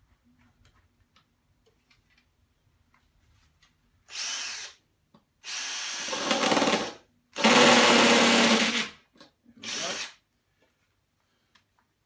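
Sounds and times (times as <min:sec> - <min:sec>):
cordless drill drilling tile: 0:04.1 - 0:04.8, 0:05.4 - 0:09.0, 0:09.6 - 0:10.2.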